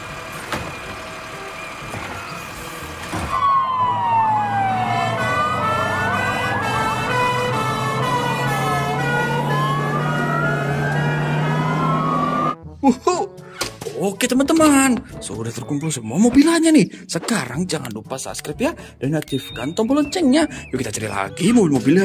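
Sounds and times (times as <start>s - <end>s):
truck engine running: 0.0s - 12.6s
two-tone siren: 3.2s - 12.6s
siren wailing up and down: 3.3s - 12.6s.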